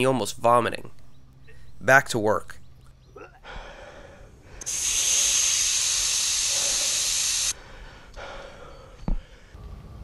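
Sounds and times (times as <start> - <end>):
air hissing from tyre valve: 4.6 - 7.6.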